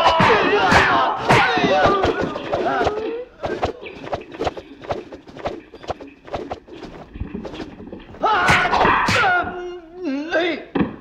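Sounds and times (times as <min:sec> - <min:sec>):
men shouting: 0:00.0 - 0:03.1
nunchaku swishing: 0:00.0 - 0:09.3.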